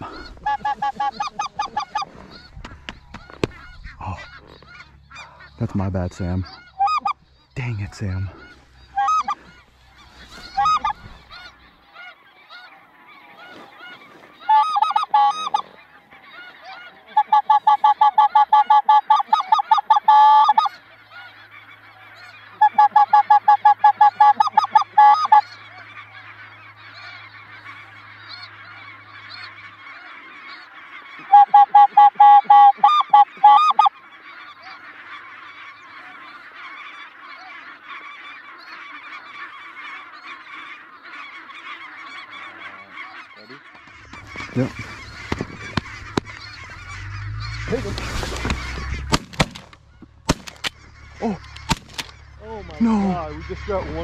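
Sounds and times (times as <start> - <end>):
din of many geese calling: 0.0 - 54.0
geese yelping honks: 0.0 - 54.0.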